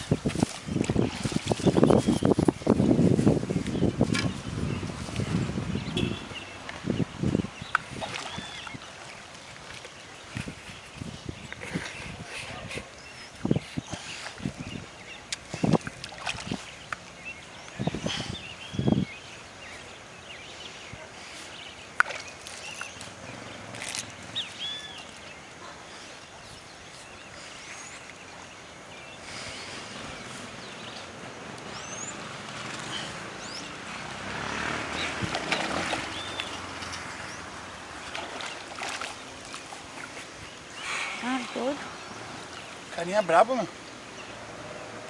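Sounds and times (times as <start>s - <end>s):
fish splashing: 0.0s - 2.5s, 7.8s - 10.6s, 15.3s - 17.2s, 30.9s - 41.4s
outdoor background noise: 0.0s - 45.0s
birds whistling: 5.7s - 9.2s, 16.4s - 33.8s, 34.9s - 37.5s.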